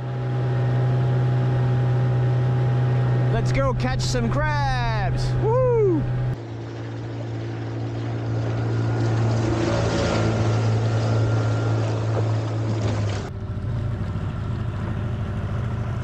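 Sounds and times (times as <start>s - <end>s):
outboard motor hum: 0.0s - 16.0s
wind: 0.0s - 16.0s
rushing water: 6.3s - 14.8s.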